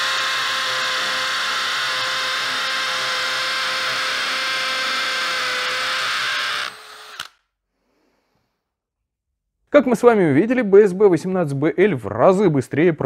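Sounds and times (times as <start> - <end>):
hammer drill boring into concrete: 0.0 - 7.4.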